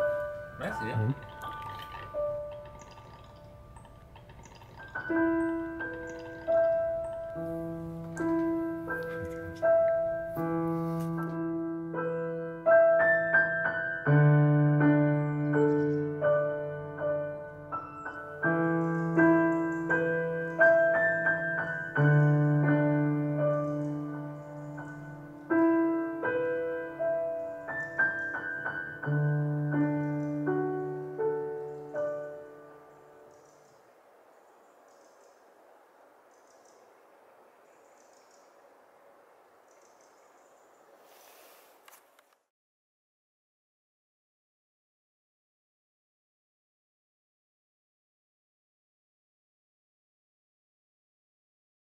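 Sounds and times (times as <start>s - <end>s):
slow solo piano: 0.0s - 34.0s.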